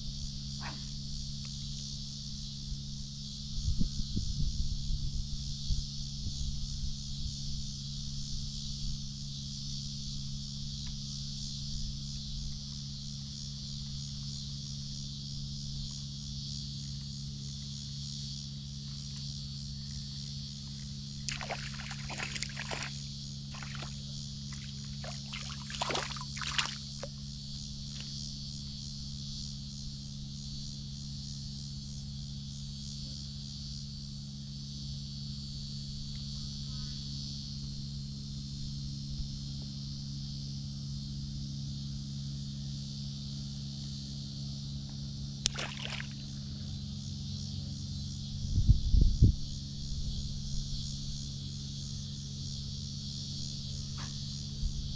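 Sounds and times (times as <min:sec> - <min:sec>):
faint low hum: 0:00.0 - 0:34.6
high-pitched insect chorus: 0:00.0 - 0:54.9.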